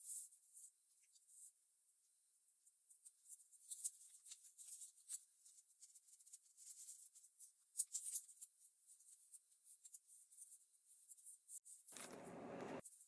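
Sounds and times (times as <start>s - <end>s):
paper rustling and crinkling: 3.1s - 13.0s.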